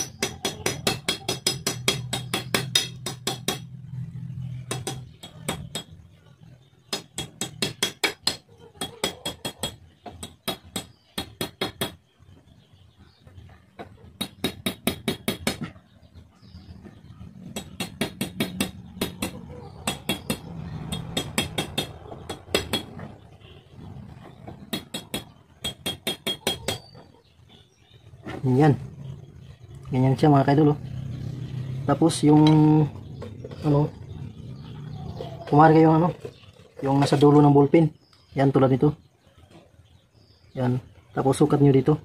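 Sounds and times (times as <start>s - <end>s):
hammer tapping metal: 0.0s - 3.8s, 4.6s - 6.1s, 6.9s - 12.0s, 14.2s - 15.8s, 17.5s - 23.1s, 24.6s - 26.9s.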